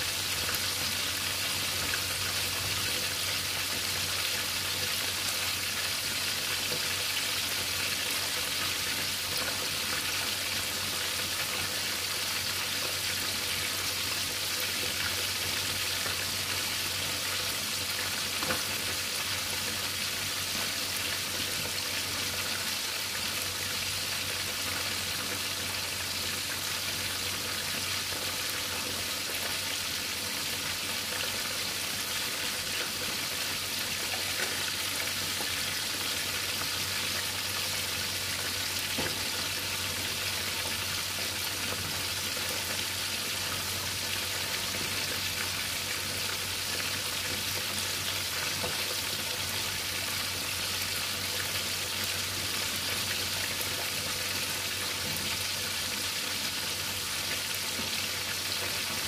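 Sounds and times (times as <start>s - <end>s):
fish deep-frying in oil: 0.0s - 59.0s.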